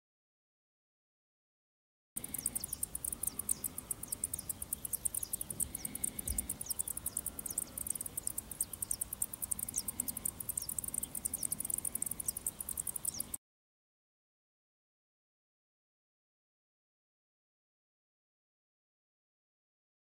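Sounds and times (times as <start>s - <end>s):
insect chirring: 2.2s - 13.4s.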